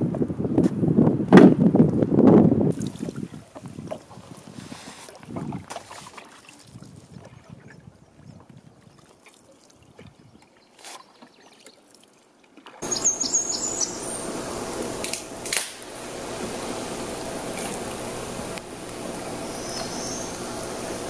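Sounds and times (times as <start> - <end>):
canoe paddle stroking water: 2.7 - 21.0
bird chirping: 12.8 - 14.8, 19.4 - 20.5
rain hiss: 12.8 - 21.0.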